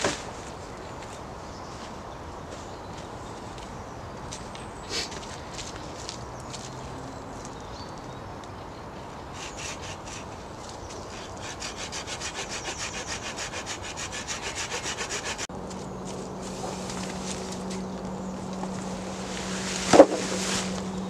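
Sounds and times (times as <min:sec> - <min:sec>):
hand saw cutting wood: 0:09.4 - 0:10.4, 0:11.0 - 0:15.5, 0:19.4 - 0:20.8
steady low hum: 0:15.5 - 0:21.0.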